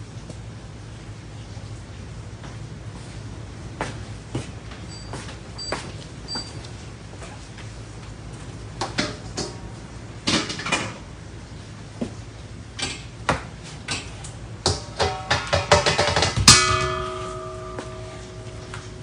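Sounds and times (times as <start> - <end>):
metal kitchenware clattering: 14.7 - 19.0
metal bowl hitting floor and ringing: 15.0 - 19.0.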